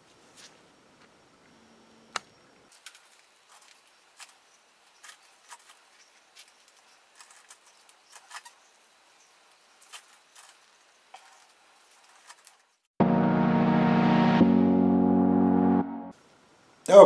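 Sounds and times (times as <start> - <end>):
plastic sheeting clicks and crinkles: 2.7 - 4.4, 5.0 - 8.6.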